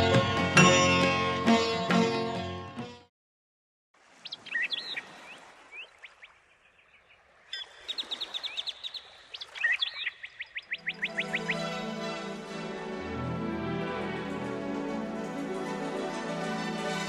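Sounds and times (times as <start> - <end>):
birds calling and chirping: 4.1 - 11.9.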